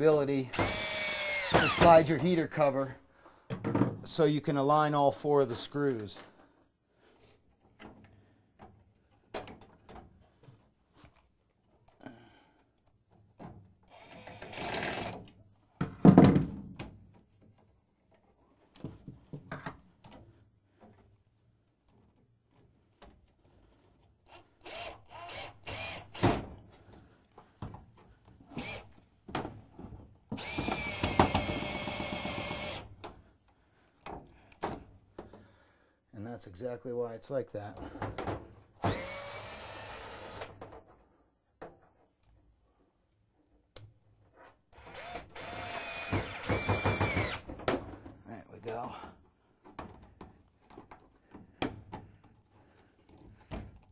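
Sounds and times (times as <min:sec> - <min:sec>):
cordless drill driving screws: 0:00.5 - 0:02.1, 0:13.9 - 0:15.3, 0:24.3 - 0:26.4, 0:28.5 - 0:29.0, 0:30.3 - 0:33.0, 0:38.8 - 0:40.6, 0:44.7 - 0:47.5.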